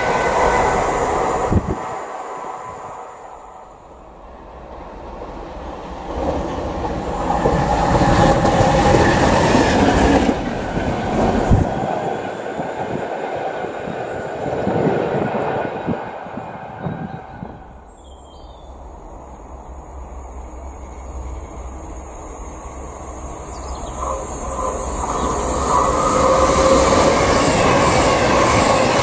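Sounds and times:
train wheels clattering on rails: 0:04.6 - 0:17.4, 0:23.4 - 0:29.0.

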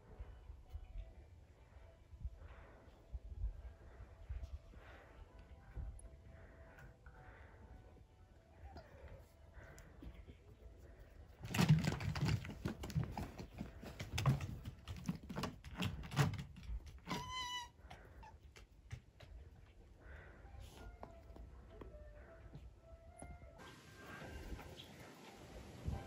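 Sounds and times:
scratching and knocking on wood: 0:11.4 - 0:17.4.

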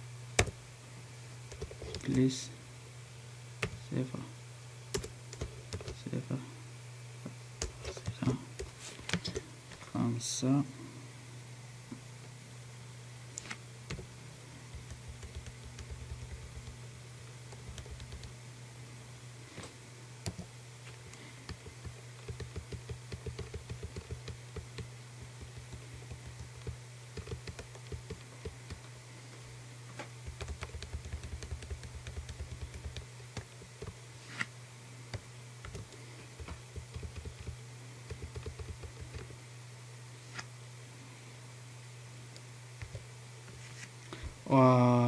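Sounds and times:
steady low hum: 0:00.0 - 0:45.0
keyboard typing clicks: 0:21.5 - 0:28.8, 0:35.1 - 0:39.3.

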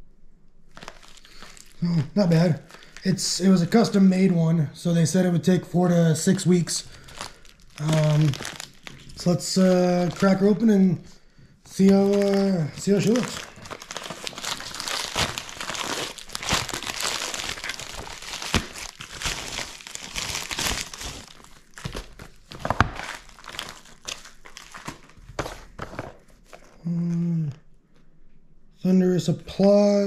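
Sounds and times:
plastic bag tearing: 0:00.7 - 0:03.2, 0:06.8 - 0:10.7, 0:11.7 - 0:26.6
plastic bag crinkling: 0:00.7 - 0:03.4, 0:06.4 - 0:11.1, 0:11.7 - 0:26.8.

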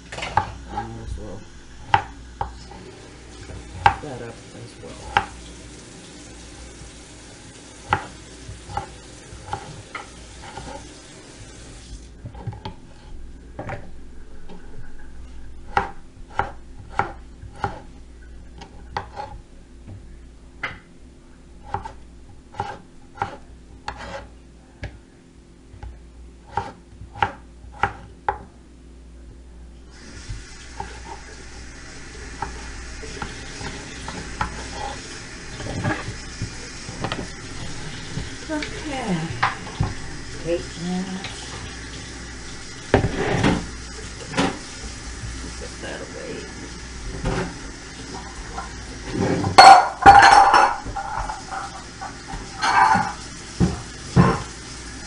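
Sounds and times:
knife slicing potato: 0:07.8 - 0:10.9, 0:15.7 - 0:17.9, 0:18.6 - 0:19.4, 0:21.6 - 0:24.3, 0:26.4 - 0:28.1.

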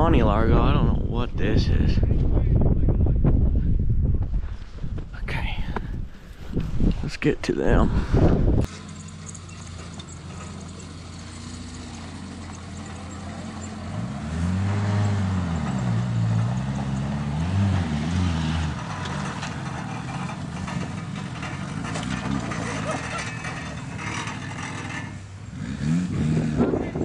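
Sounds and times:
car engine revving: 0:08.6 - 0:27.0.

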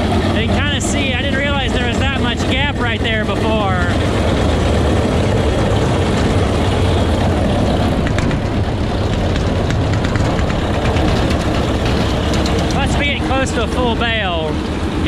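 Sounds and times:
tractor engine rumbling: 0:00.0 - 0:15.0
baler rattling: 0:00.6 - 0:14.9.

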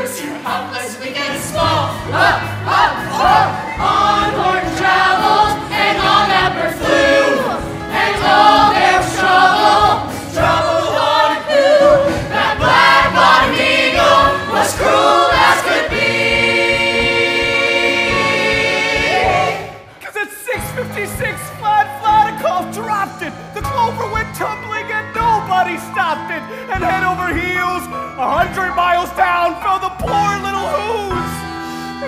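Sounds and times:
chorus singing with accompaniment: 0:00.0 - 0:20.0.

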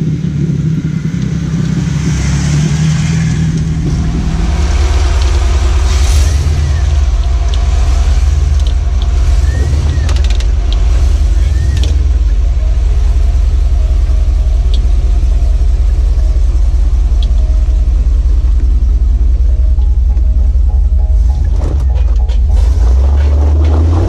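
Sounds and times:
engine low rumble: 0:00.0 - 0:24.0.

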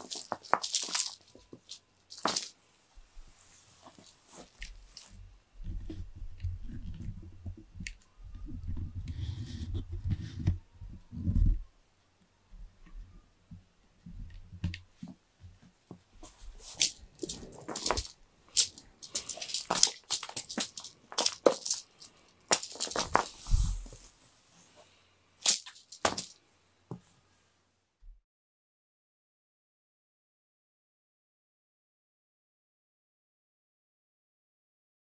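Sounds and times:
cat toy rustling and crackling: 0:00.0 - 0:02.6, 0:03.3 - 0:10.5, 0:16.2 - 0:26.4.

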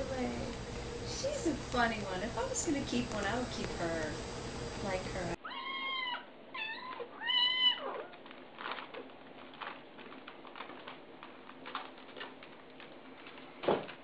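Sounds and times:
kitten mewing: 0:05.4 - 0:08.2.

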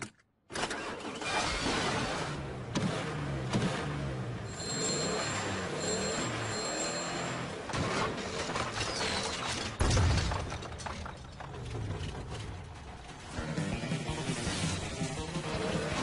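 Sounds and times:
clattering: 0:07.7 - 0:13.3
loud breaking crash: 0:07.8 - 0:13.1.

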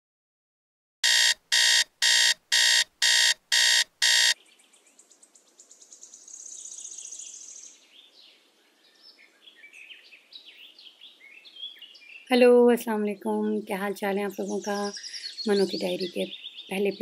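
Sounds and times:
digital alarm clock beeping: 0:01.0 - 0:04.4.

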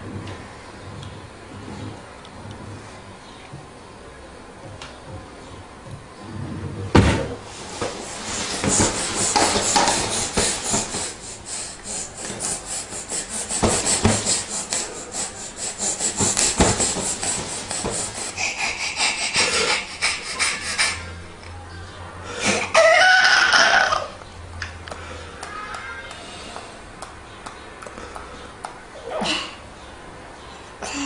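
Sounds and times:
baby laughing: 0:12.2 - 0:21.2.

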